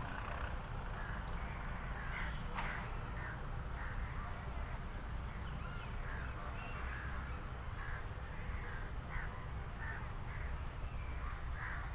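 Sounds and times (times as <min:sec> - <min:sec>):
crows cawing: 0:01.0 - 0:04.2, 0:06.0 - 0:10.6, 0:11.2 - 0:11.9.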